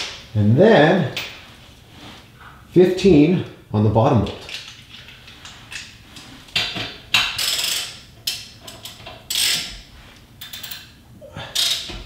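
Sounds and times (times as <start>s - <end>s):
hand ratchet clicking: 7.1s - 9.8s, 10.4s - 10.9s, 11.5s - 12.0s.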